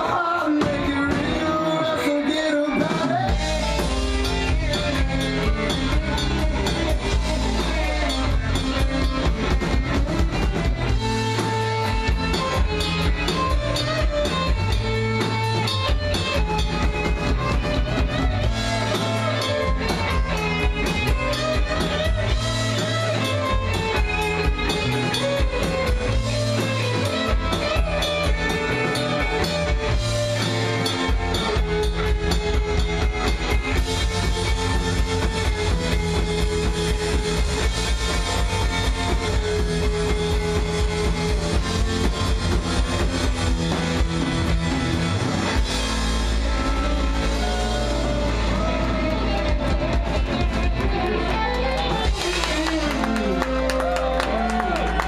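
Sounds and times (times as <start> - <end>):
drum kit: 0.0 - 55.0
electric guitars: 0.0 - 55.0.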